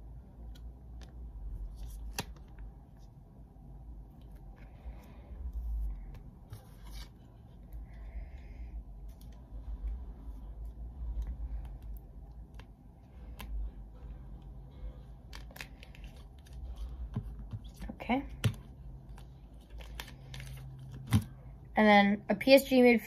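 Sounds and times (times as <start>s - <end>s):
plastic sleeves rustling: 0.5s - 3.2s, 14.8s - 21.4s.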